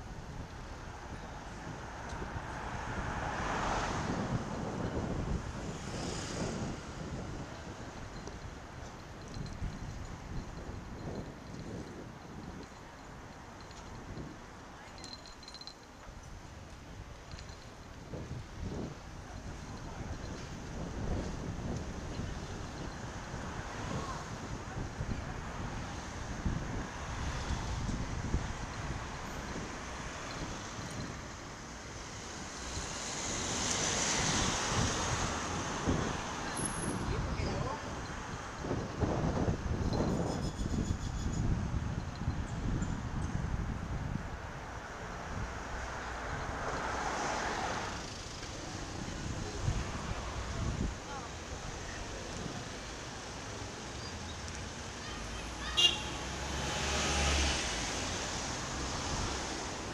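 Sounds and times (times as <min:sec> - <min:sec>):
wind buffeting microphone: 0:00.0 - 0:46.8, 0:48.5 - 0:53.8
road traffic: 0:00.0 - 0:59.9
bus passing close: 0:45.0 - 0:59.9.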